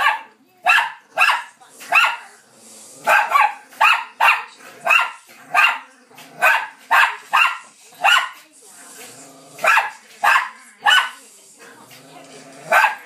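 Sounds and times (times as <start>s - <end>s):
small dogs barking: 0.0s - 2.3s, 3.0s - 8.4s, 9.6s - 11.2s, 12.6s - 13.0s.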